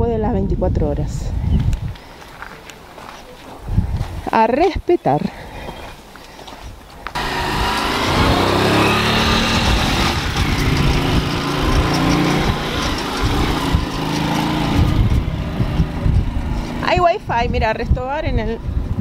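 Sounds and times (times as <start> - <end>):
motorcycle engine running: 7.1 - 19.0.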